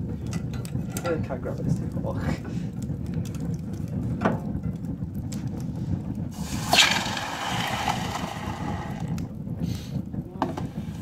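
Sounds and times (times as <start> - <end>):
fire burning with low rumble: 0.0 - 11.0
fire crackling: 0.0 - 11.0
burst of rushing hissing noise: 6.3 - 9.1.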